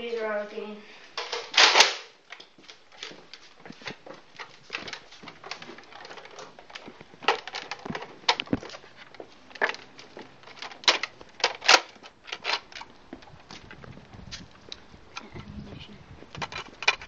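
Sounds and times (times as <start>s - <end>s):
plastic toy blasters clicking: 1.2s - 2.1s, 10.6s - 12.9s.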